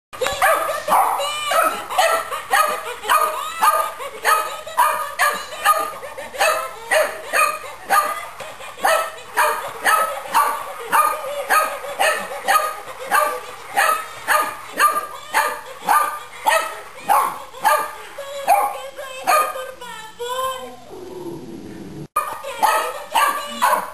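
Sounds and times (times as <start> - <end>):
puppy barking in high yips: 22.2 - 23.9.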